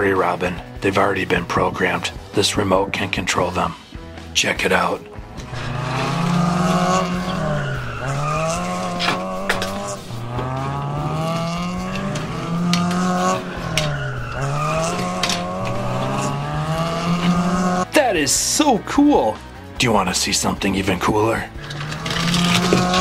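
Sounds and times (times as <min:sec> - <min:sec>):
tires squealing: 0:05.2 - 0:17.9, 0:21.6 - 0:23.0
race car engine revving: 0:05.3 - 0:17.9, 0:21.6 - 0:23.0.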